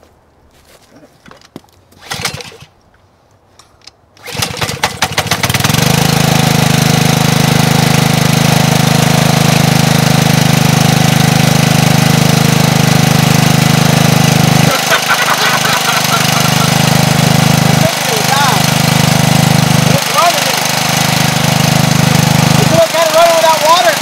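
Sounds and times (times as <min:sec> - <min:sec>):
engine starter rattle: 0:02.0 - 0:02.7, 0:04.2 - 0:05.8
small engine running: 0:02.0 - 0:02.7, 0:04.2 - 0:24.0.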